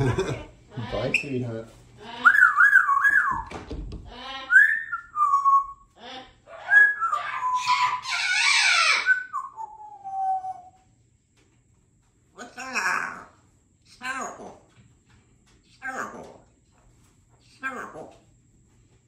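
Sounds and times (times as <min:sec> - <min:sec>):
parrot whistling: 0:02.2 - 0:03.5, 0:04.4 - 0:05.9, 0:06.5 - 0:10.8
parrot speech-like babble: 0:06.0 - 0:09.1, 0:12.4 - 0:14.7, 0:15.8 - 0:16.5, 0:17.6 - 0:18.2
parrot harsh raspy squawk: 0:06.0 - 0:09.3, 0:12.4 - 0:13.3.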